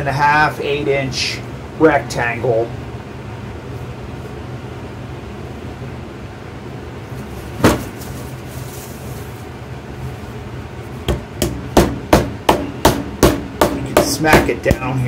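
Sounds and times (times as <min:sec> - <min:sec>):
single knock: 0:07.6 - 0:07.9
rolling pin smacking dough: 0:11.0 - 0:15.0.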